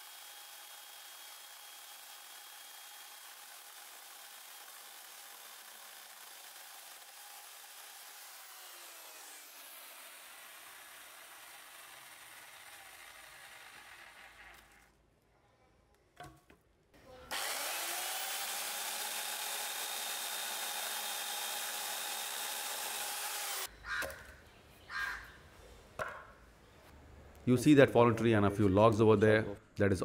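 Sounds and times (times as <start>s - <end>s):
electric chainsaw running: 0.0s - 14.9s, 17.3s - 23.7s.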